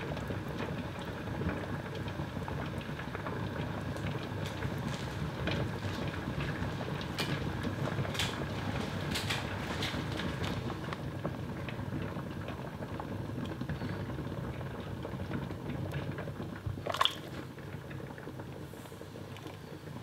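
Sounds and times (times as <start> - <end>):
water boiling in a pot: 0.0 - 20.0.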